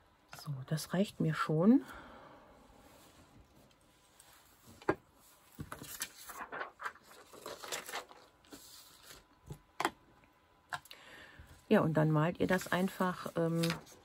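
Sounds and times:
paper rustling: 4.2s - 9.6s, 12.4s - 14.0s.

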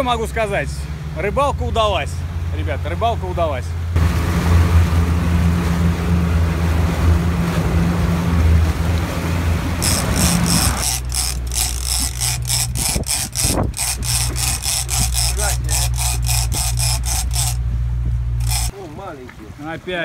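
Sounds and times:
water churning in wake: 0.0s - 17.6s
boat engine running: 0.0s - 18.8s
fishing reel rasping: 9.8s - 17.6s, 18.4s - 18.8s.

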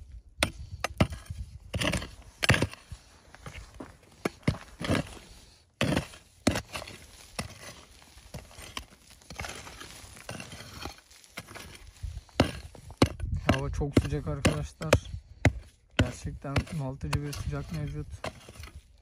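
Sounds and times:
pick striking stony soil: 0.0s - 19.0s
soil and stones crumbling: 0.0s - 19.0s.

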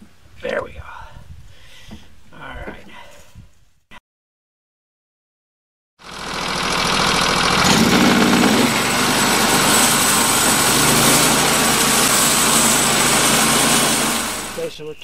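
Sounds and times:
band sawmill cutting log: 6.0s - 14.7s.

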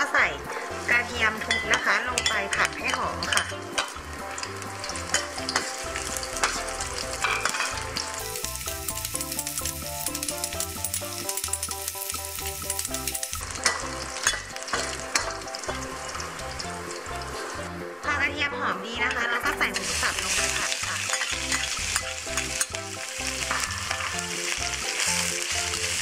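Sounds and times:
garlic sizzling in hot oil: 0.0s - 17.9s, 19.5s - 26.0s
metal spatula scraping a pan: 1.4s - 8.2s, 13.5s - 17.6s, 19.7s - 24.3s.

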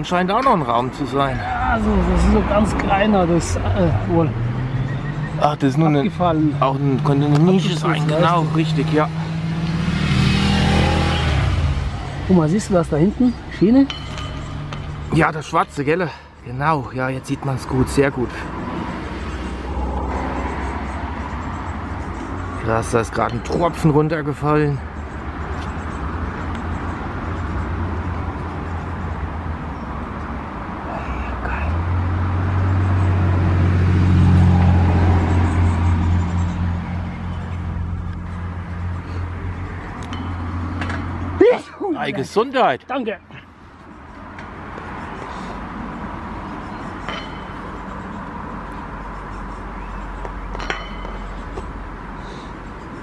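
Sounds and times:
low rumble of motor traffic: 0.0s - 53.0s
sharp clink: 13.8s - 15.2s, 47.0s - 48.0s, 50.6s - 51.5s.

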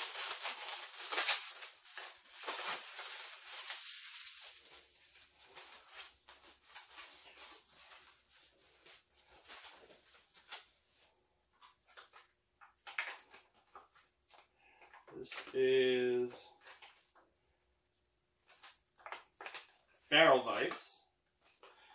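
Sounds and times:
packaging crinkling: 0.0s - 15.6s, 18.4s - 20.1s.

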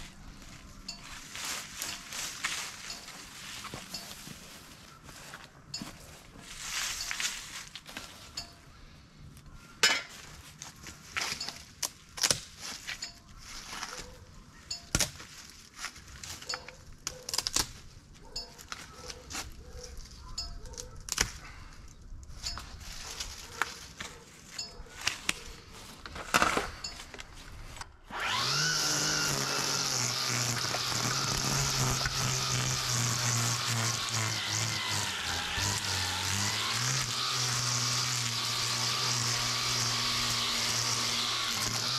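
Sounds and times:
power tool running: 28.0s - 41.9s.

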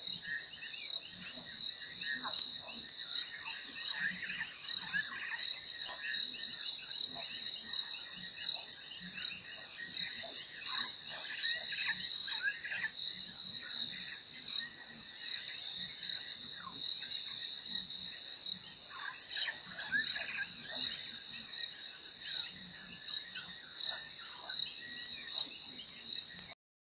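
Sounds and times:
frogs chirping and croaking: 0.0s - 26.6s.

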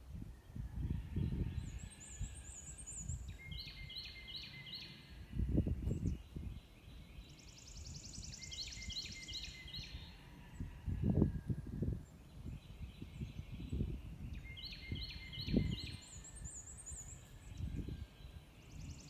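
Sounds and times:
wind buffeting microphone: 0.0s - 4.0s, 5.2s - 7.4s, 8.0s - 19.0s
songbird singing: 0.0s - 19.0s.

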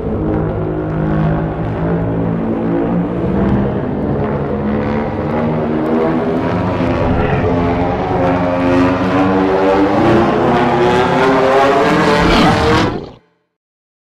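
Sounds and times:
low monster rumble: 6.6s - 9.6s, 12.0s - 13.2s.

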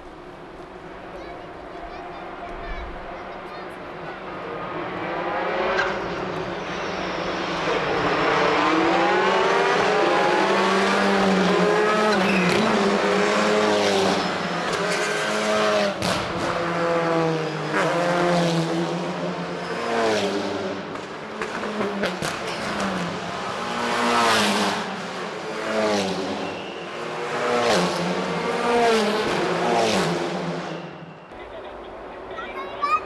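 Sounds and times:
racing car engines accelerating: 3.3s - 32.4s.

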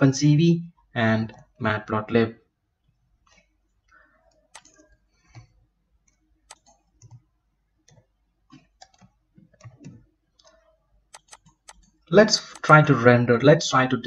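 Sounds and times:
computer keyboard typing: 4.3s - 12.7s
mouse clicks: 4.5s - 7.2s, 7.9s - 12.7s.

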